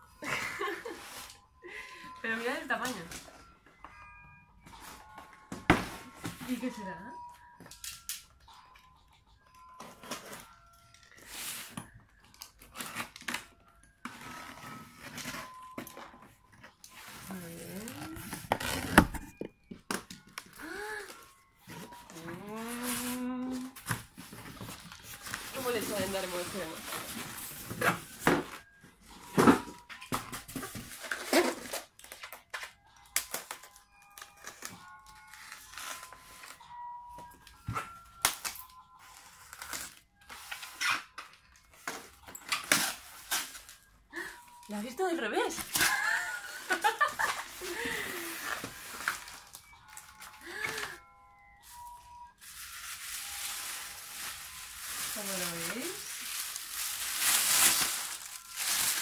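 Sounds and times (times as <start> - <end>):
foam scraping and crinkling: 17.0 - 19.3, 21.8 - 28.2, 52.4 - 59.0.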